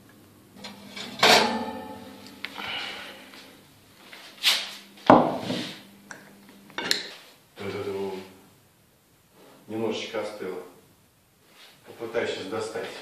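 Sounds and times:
steady low hum: 0:00.0 - 0:13.0
frying pan knocking and scraping: 0:00.6 - 0:02.4, 0:05.1 - 0:05.8.

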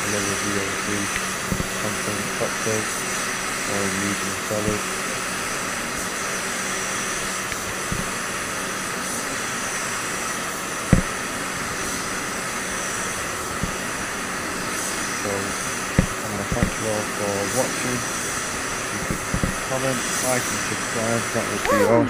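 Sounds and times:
paint spray gun hissing: 0:00.0 - 0:21.7
low thumps: 0:01.5 - 0:01.8, 0:07.8 - 0:08.2, 0:10.9 - 0:11.2, 0:13.6 - 0:13.8, 0:16.0 - 0:16.8, 0:19.0 - 0:19.7.

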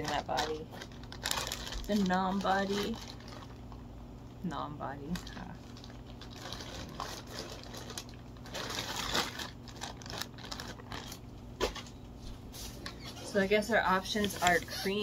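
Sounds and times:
plastic bag crinkling: 0:00.0 - 0:03.9, 0:05.0 - 0:11.8.

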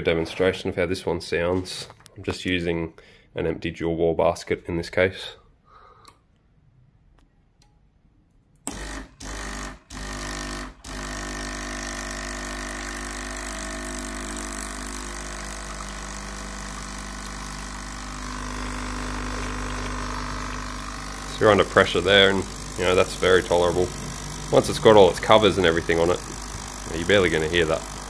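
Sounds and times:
espresso machine pump humming: 0:08.7 - 0:28.0.

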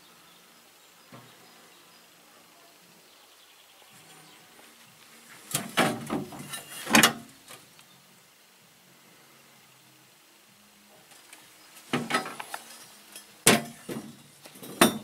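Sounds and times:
metal knocks and clanks: 0:05.5 - 0:07.3, 0:11.9 - 0:12.5, 0:13.4 - 0:15.0.

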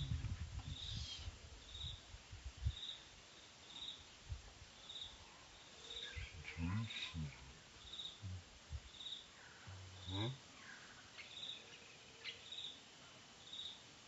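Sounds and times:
insect chirping: 0:00.0 - 0:12.8, 0:13.4 - 0:13.8
faint outdoor background: 0:00.0 - 0:14.0
low voice-like sound: 0:06.3 - 0:07.6, 0:08.2 - 0:08.5, 0:09.7 - 0:10.4.

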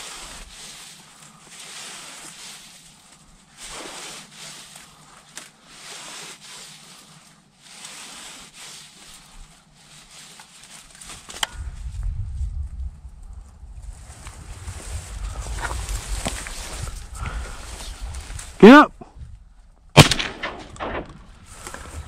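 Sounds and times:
reeds rustling in wind: 0:00.0 - 0:22.0
wind buffeting microphone: 0:11.5 - 0:19.6, 0:20.5 - 0:22.0.

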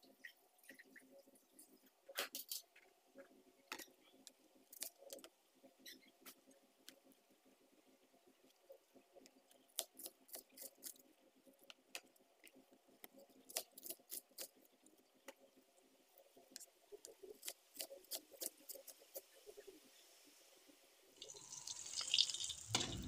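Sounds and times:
faint steady hum: 0:19.4 - 0:23.0.

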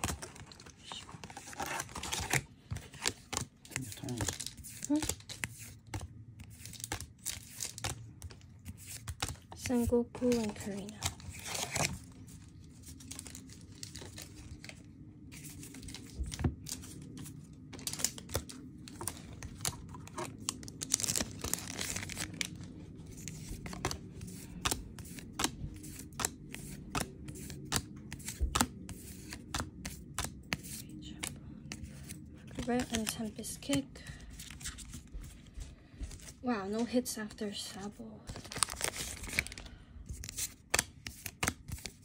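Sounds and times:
foil wrapper crinkling and tearing: 0:17.8 - 0:25.4, 0:38.3 - 0:42.0.

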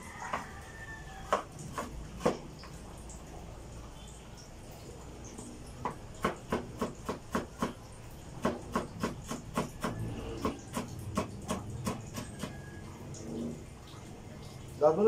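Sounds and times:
knife chopping on wooden board: 0:05.8 - 0:07.8, 0:08.4 - 0:12.6.

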